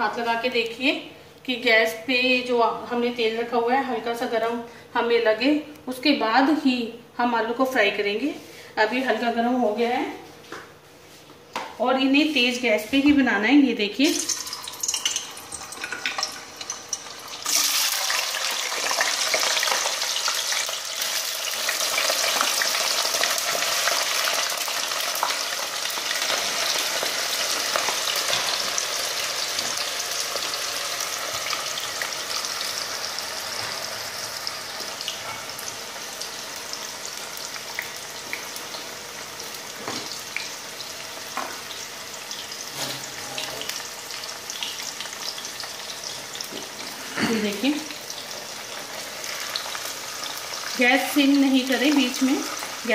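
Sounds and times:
potatoes sizzling in hot oil: 0:14.0 - 0:52.9.

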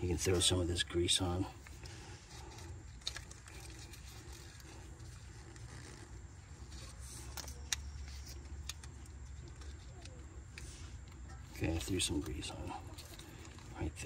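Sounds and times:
low steady background hum: 0:00.0 - 0:14.0.

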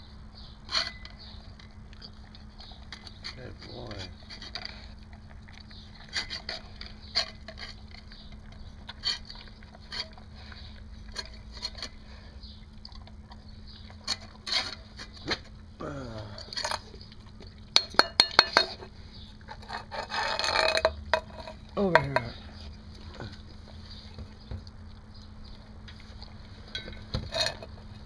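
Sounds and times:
dog eating from metal bowl: 0:00.4 - 0:28.0
metal bowl clinking: 0:17.7 - 0:18.8.

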